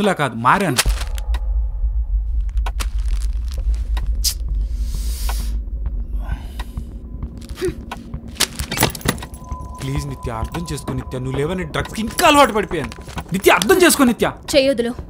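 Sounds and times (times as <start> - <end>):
sharp hits: 0.7 - 14.2
deep low drone: 0.8 - 13.4
hissing swells: 1.1 - 7.4.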